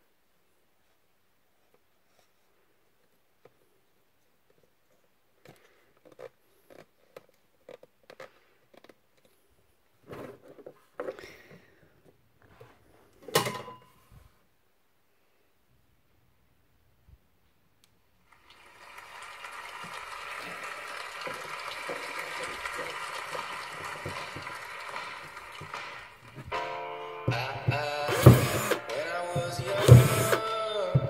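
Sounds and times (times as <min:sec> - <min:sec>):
sharp knock on plastic: 0:29.4 - 0:31.0.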